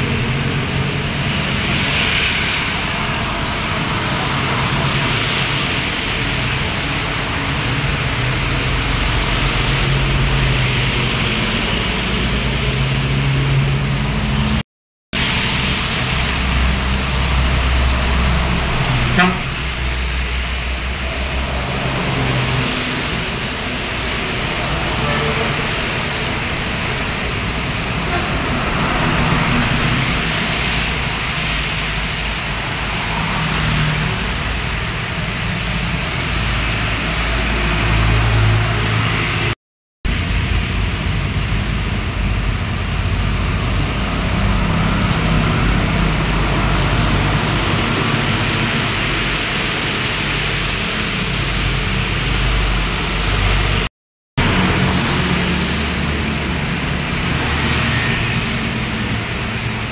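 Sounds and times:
trucks and motorcycles passing: 0:00.0 - 0:14.6, 0:15.2 - 0:59.9
tyre hiss on wet road: 0:00.0 - 0:14.6, 0:15.2 - 0:59.9
short sharp sound: 0:18.9 - 0:19.9.

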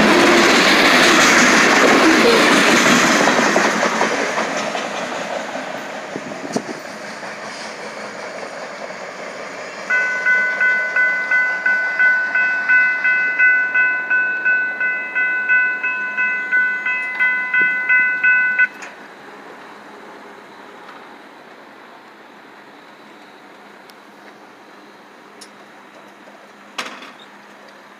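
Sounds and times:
freight train cars rolling past: 0:00.0 - 0:27.9
railroad crossing bell ringing: 0:09.8 - 0:19.0.

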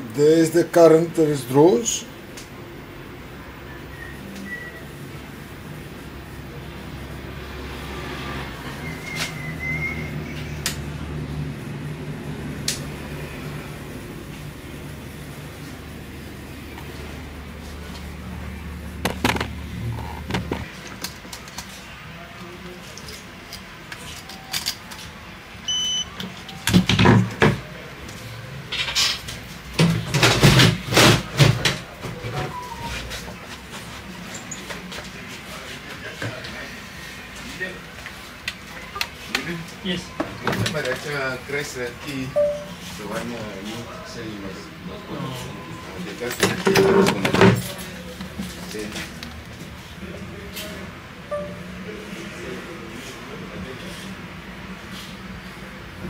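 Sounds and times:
faint thin high whistle: 0:03.7 - 0:04.9, 0:08.8 - 0:10.4
drawer scraping and rattling: 0:46.4 - 0:47.7.

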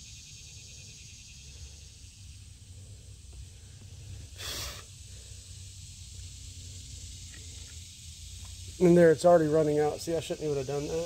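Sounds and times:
high hiss: 0:00.0 - 0:11.0
person breathing out sharply: 0:03.7 - 0:05.6.

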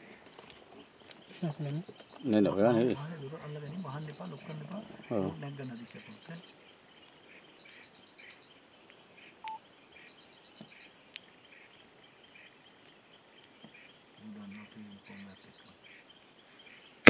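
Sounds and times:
faint clicks: 0:06.0 - 0:09.6, 0:10.6 - 0:16.4
faint high chirp: 0:09.2 - 0:10.9.

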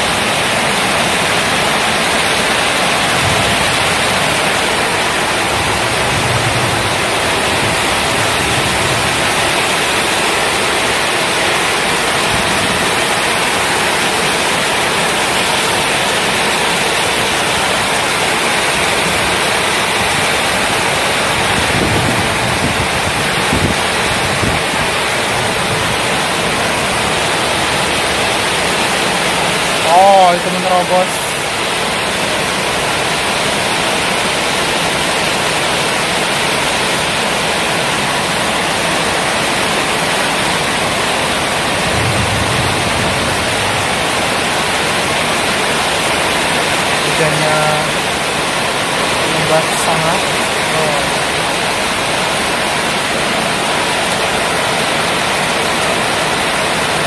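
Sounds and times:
heavy rain on roofs and street: 0:00.0 - 0:57.0.

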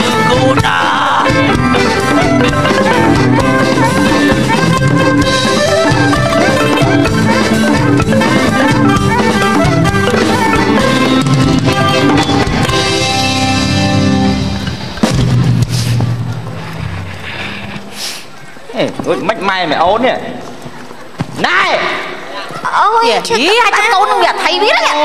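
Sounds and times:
band music with drums: 0:00.0 - 0:19.4.

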